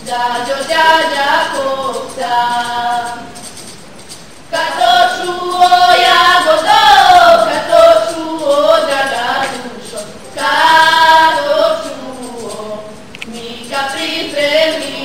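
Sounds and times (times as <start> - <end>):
women singing folk song: 0.0 - 3.6, 4.5 - 15.0.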